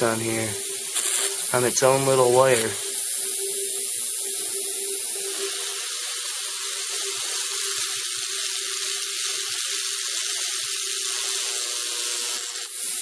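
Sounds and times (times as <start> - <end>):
steady hum: 0.0 - 5.7
electrical discharge sizzling: 0.0 - 13.0.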